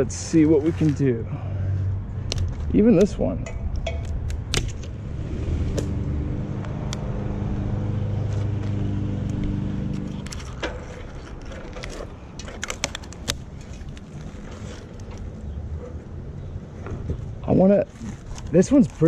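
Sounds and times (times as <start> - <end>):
vehicle engine humming: 0.0 - 19.0
dead branches cracking: 8.3 - 15.4.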